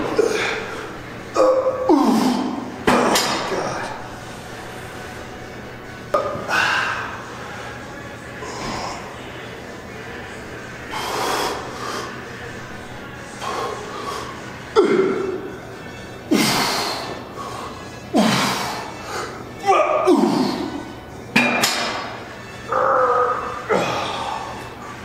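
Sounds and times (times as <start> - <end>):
man breathing hard: 10.9 - 12.2.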